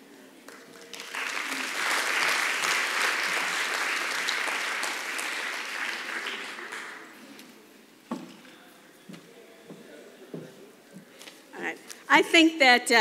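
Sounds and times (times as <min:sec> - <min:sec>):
audience applause: 0:00.5 - 0:07.2.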